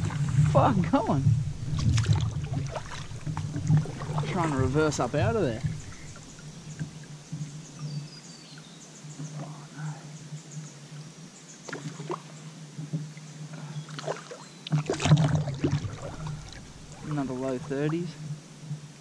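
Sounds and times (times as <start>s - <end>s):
water splashing: 0.0s - 7.8s, 13.9s - 18.6s
steady low hum: 0.0s - 7.9s, 15.0s - 19.0s
knocks on kayak: 1.4s - 4.5s.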